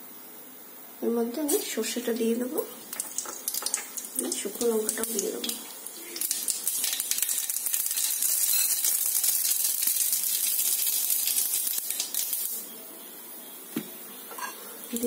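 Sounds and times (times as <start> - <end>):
oil sizzling: 1.2 - 12.7
seeds popping in hot oil: 2.8 - 12.6.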